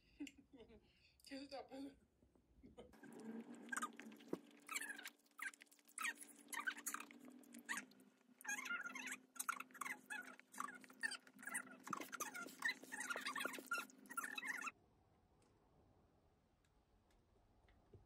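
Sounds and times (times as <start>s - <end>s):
wet chewing mouth clicks: 3.0s - 14.7s.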